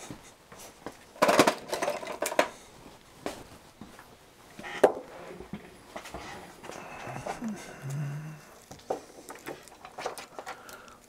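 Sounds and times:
small hard objects clattering: 1.1s - 2.6s, 8.6s - 11.0s.

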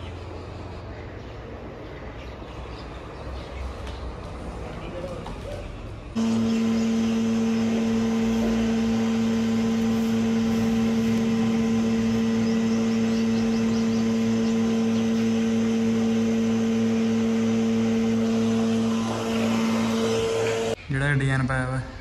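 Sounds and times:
steady machine hum: 6.1s - 20.8s.

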